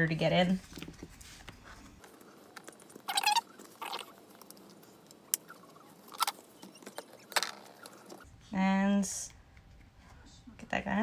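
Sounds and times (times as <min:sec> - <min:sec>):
metal squeaking against foam: 0:03.0 - 0:04.2.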